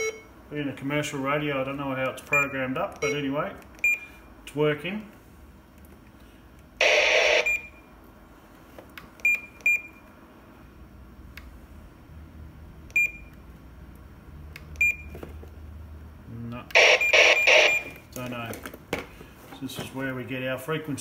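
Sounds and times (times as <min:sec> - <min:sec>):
short high-pitched key beeps: 0:00.0 - 0:00.3.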